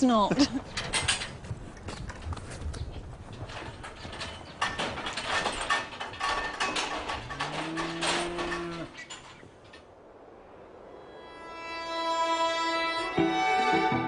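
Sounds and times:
metal rattling and clanging: 0.3 - 10.0
cow mooing: 7.3 - 9.0.

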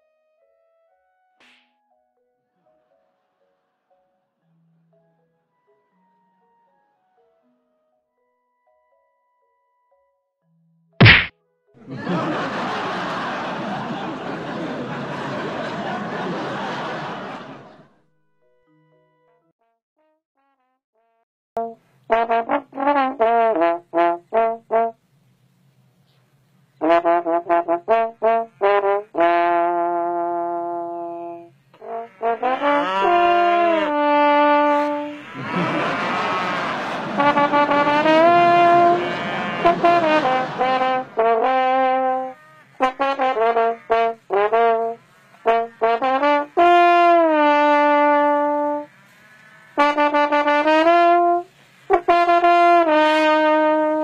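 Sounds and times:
rough noise: 11.0 - 11.3
trombone playing a tune: 20.4 - 25.0, 26.8 - 48.9, 49.8 - 54.0.

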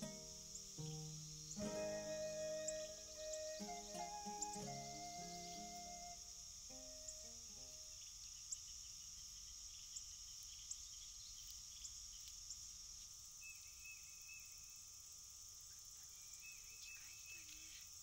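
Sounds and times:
crickets chirping: 0.0 - 18.0
soft ticks: 11.4 - 13.1.

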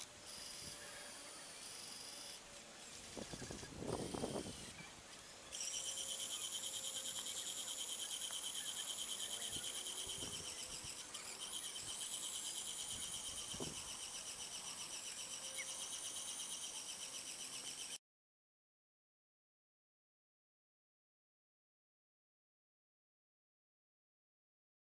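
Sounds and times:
insects chirping: 0.0 - 4.8, 5.4 - 18.0.

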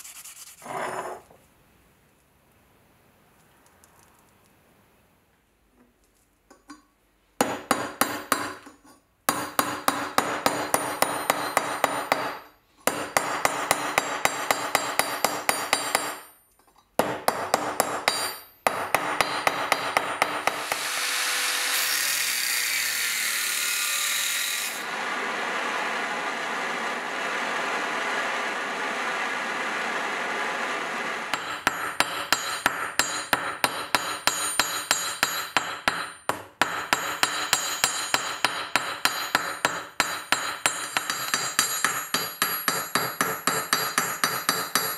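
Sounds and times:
hammer striking metal on anvil: 7.4 - 8.6, 9.3 - 16.3, 17.0 - 20.9, 31.2 - 44.9
angle grinder cutting metal: 20.5 - 31.9.

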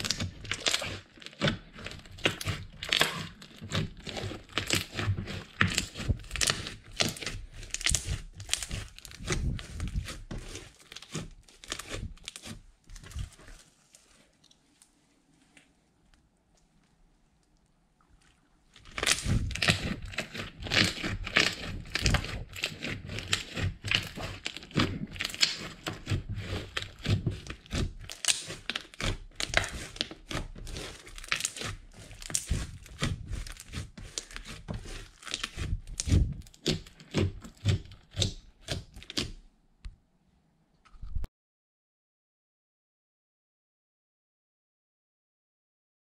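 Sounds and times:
fingers squeezing sticky slime: 0.0 - 14.6, 18.7 - 39.4.

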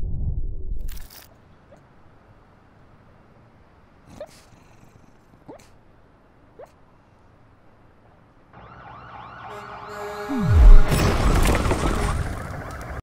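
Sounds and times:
wailing sirens: 8.5 - 13.0
dramatic music: 9.5 - 12.0
loud noisy rush: 9.8 - 12.3
deep falling boom: 10.3 - 12.3.

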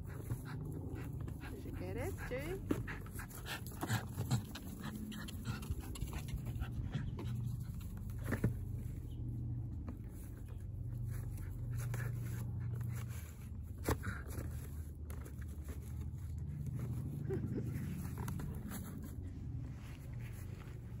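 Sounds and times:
dog panting: 0.0 - 8.6.

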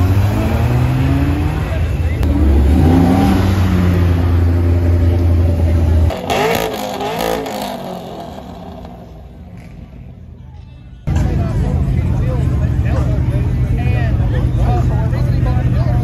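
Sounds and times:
car engine revving: 0.0 - 9.8
loud car engine drone: 0.0 - 10.4.

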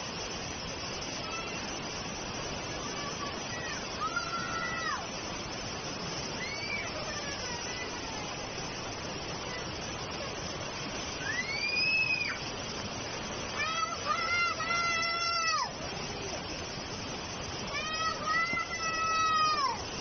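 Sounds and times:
floodwater rushing: 0.0 - 20.0
rain: 0.0 - 20.0
high-pitched cries: 6.4 - 7.8, 11.2 - 12.4, 13.6 - 15.8, 17.7 - 19.8.

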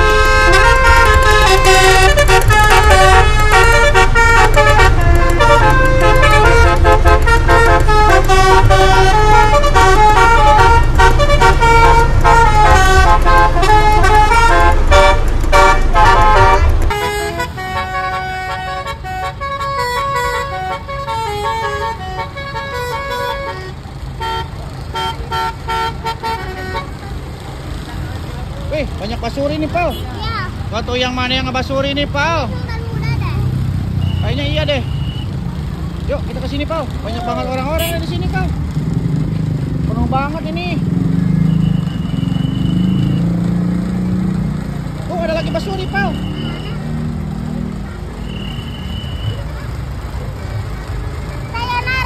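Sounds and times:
musical air horn honks: 0.0 - 26.9
low engine rumble: 0.0 - 52.0.

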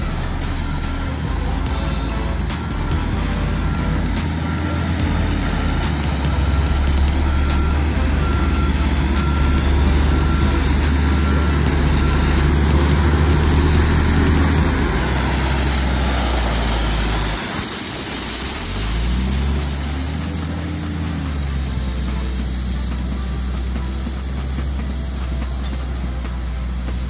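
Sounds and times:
backup alarm beeping: 0.0 - 17.8
gravel pouring: 0.0 - 27.0
truck engine rumbling: 0.0 - 27.0.

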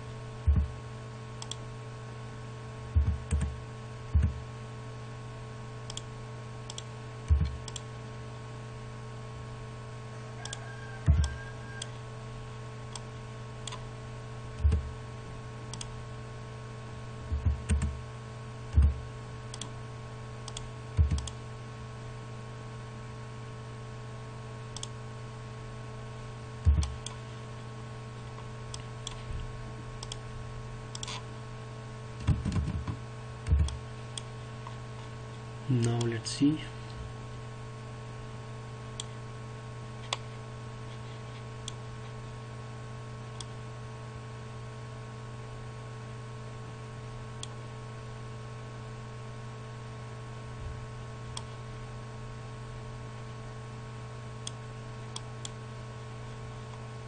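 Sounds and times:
steady low hum: 0.0 - 57.0
computer mouse clicks: 1.4 - 1.6, 5.9 - 6.1, 6.7 - 7.9, 10.4 - 11.9, 12.9 - 13.8, 15.7 - 15.9, 19.5 - 19.7, 20.4 - 21.4, 24.8 - 25.0, 28.7 - 29.3, 30.0 - 30.2, 30.9 - 31.2.

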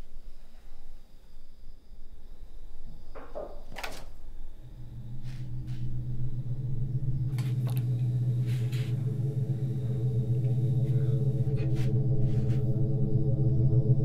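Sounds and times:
low suspense drone: 4.1 - 14.0.

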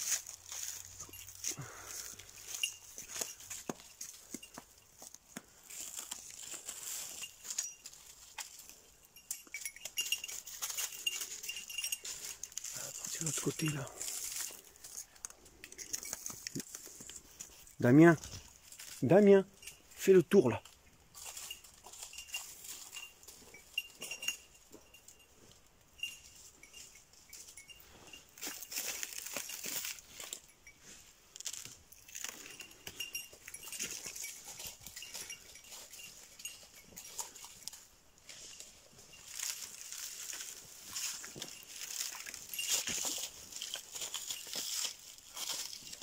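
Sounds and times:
dry leaves rustling underfoot: 0.0 - 46.0
small bell tinkling: 0.0 - 46.0.

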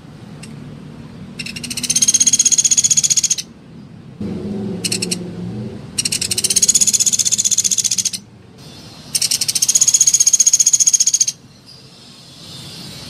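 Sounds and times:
woodpecker high trills: 1.4 - 3.5, 6.0 - 8.2, 9.2 - 11.4.

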